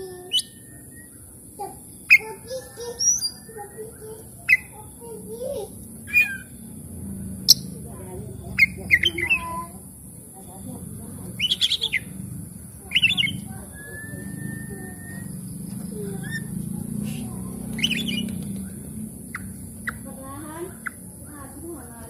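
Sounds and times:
bird chirping and trilling: 0.0s - 21.9s
long level bird whistle: 0.2s - 3.8s, 12.9s - 15.6s, 17.8s - 20.0s
low steady rumble: 2.7s - 22.0s.

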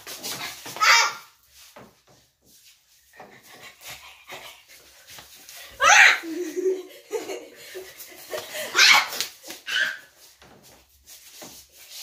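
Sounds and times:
people laughing and shrieking: 5.7s - 9.3s.

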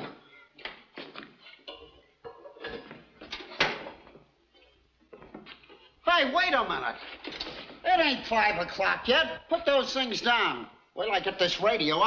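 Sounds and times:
tools and toolbox clattering: 1.6s - 4.2s.

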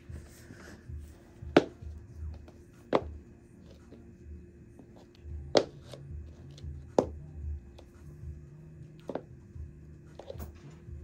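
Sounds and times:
soft music with bass line: 0.0s - 11.0s
high heels clicking on hard floor: 1.5s - 3.2s, 4.8s - 7.2s, 9.0s - 9.3s.

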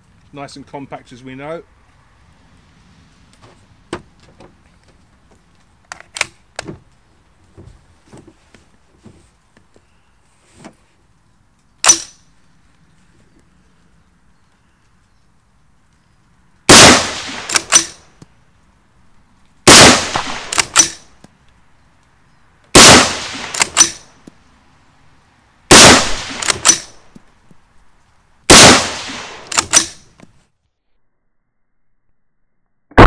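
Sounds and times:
rifle shots: 16.7s - 18.1s, 19.7s - 21.1s, 22.7s - 24.1s, 25.7s - 27.0s, 28.5s - 30.1s
rifle bolt action clicks: 23.5s - 24.0s, 26.3s - 26.9s, 29.4s - 30.0s.

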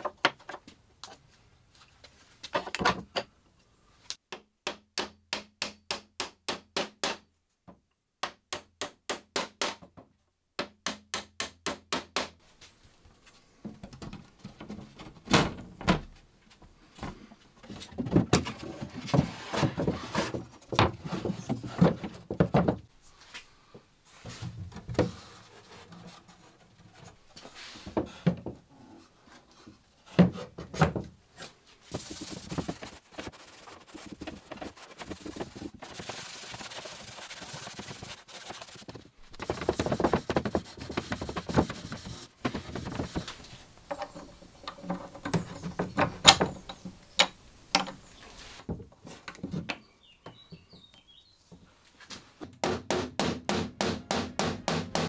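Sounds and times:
cloth rubbing on wood: 31.8s - 43.4s
wooden knocks: 39.4s - 43.3s.

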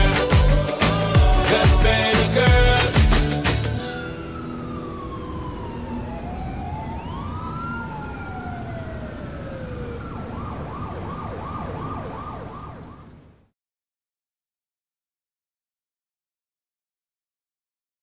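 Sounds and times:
siren wailing: 3.8s - 13.5s
siren yelp: 3.8s - 13.5s.

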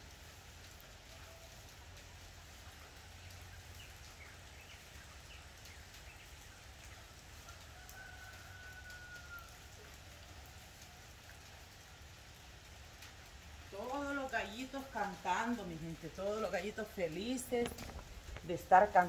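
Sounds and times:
roosters crowing faintly: 7.3s - 10.2s.

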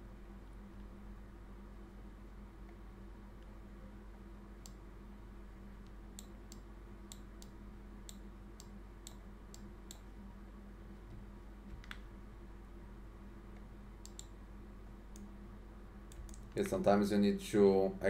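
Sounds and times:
faint electrical hum: 0.0s - 18.0s
computer mouse clicking: 13.6s - 14.3s, 16.1s - 16.8s.

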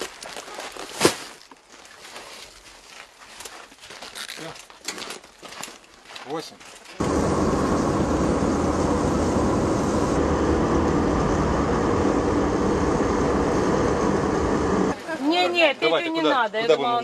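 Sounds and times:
car engine and road noise: 7.0s - 15.0s.

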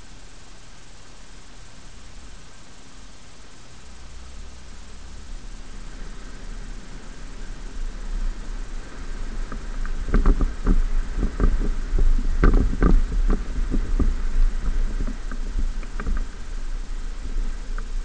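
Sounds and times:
truck engine low rumble: 3.8s - 18.0s
knocks and rattles: 9.2s - 18.0s.

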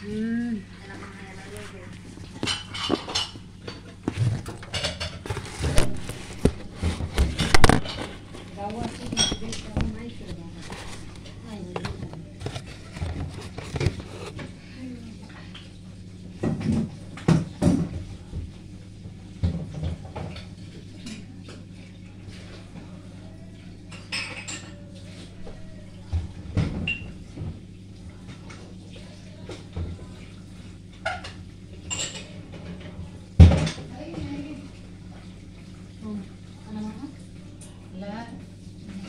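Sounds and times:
steady low hum: 0.0s - 23.9s
dishes and utensils clinking: 2.3s - 14.4s, 23.9s - 24.9s, 31.0s - 33.9s.

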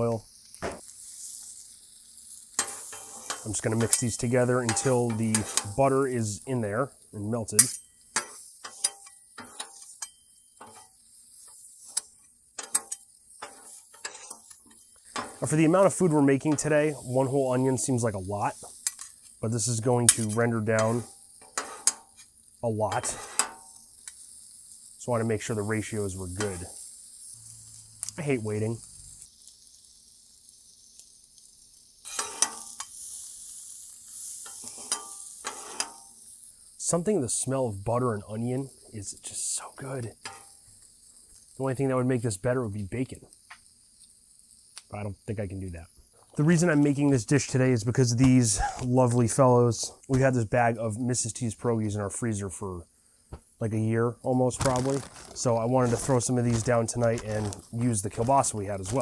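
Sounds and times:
faint sizzle: 0.0s - 59.0s
metal spatulas scraping griddle: 2.6s - 6.7s, 7.3s - 23.8s, 25.5s - 26.6s, 32.1s - 33.0s, 34.4s - 36.1s, 40.2s - 40.5s, 54.6s - 59.0s.

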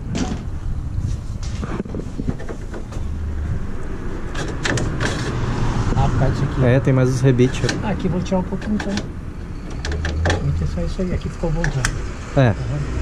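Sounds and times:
steady low rumble: 0.0s - 12.4s
roof knocking and rattling: 1.8s - 3.1s.

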